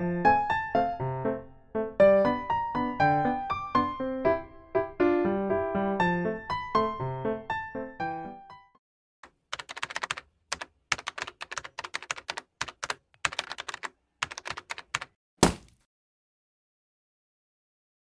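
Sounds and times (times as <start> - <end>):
keyboard key clicks: 9.2 - 15.7.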